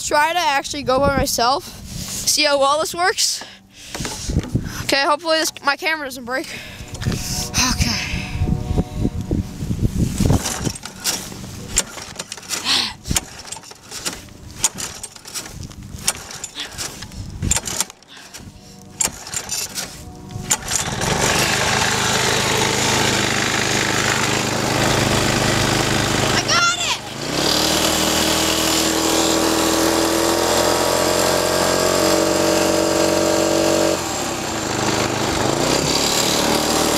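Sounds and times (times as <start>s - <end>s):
go-kart engine running: 10.0s - 36.9s.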